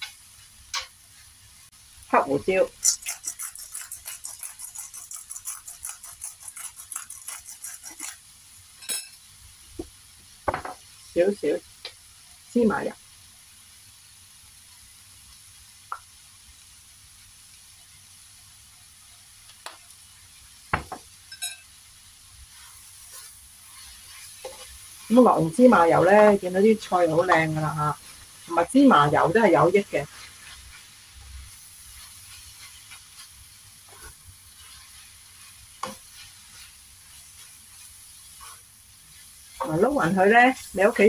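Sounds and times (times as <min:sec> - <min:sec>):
spatula stirring in frying pan: 0:00.0 - 0:09.2, 0:20.6 - 0:41.0
faint sizzle: 0:00.0 - 0:41.0
pepper grinder grating: 0:02.8 - 0:08.2.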